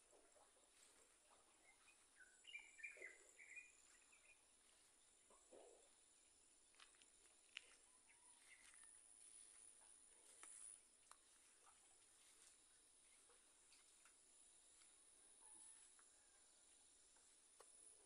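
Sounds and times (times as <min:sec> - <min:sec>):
faint bird chirps: 0:00.0 - 0:09.5.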